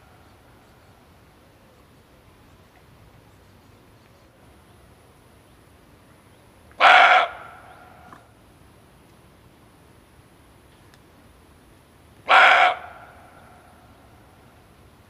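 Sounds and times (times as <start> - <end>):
faint background hiss: 0.0 - 15.0
deer barking: 6.8 - 7.6, 12.3 - 13.2.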